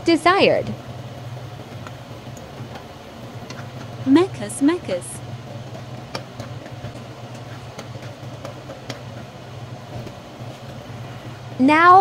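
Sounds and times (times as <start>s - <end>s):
spoon stirring simmering curry: 1.5s - 4.0s, 5.2s - 11.0s.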